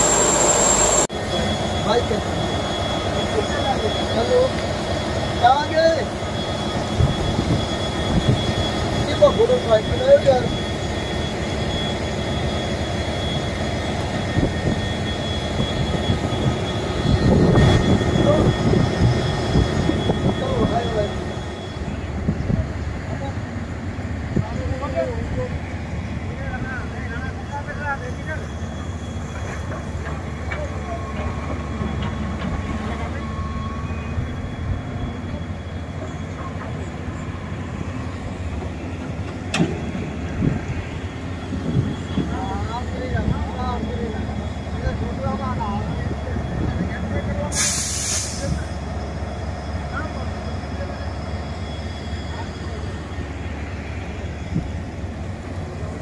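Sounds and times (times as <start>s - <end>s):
wind buffeting microphone: 15.5s - 20.8s.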